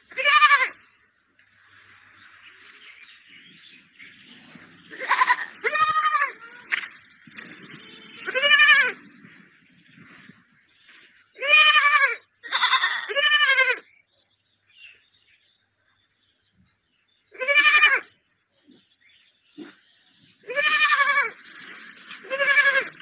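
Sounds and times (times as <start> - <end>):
lamb bleating: 0.1 - 0.8, 4.9 - 6.7, 7.9 - 9.0, 11.4 - 13.8, 17.4 - 18.1, 20.5 - 21.4, 22.2 - 23.0.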